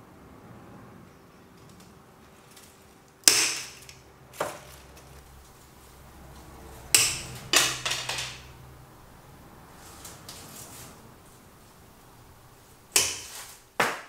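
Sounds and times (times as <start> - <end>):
cutters snipping branches: 3.2 - 14.0.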